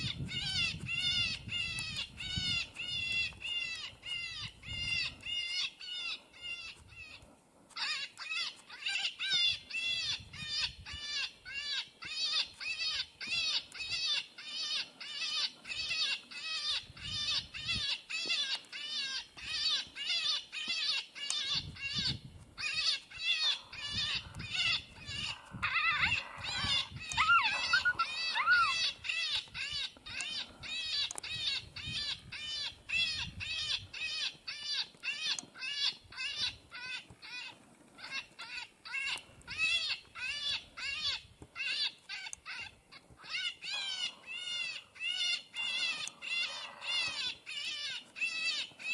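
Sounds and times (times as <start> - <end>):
electronic distress squeals: 27.2 - 28.7.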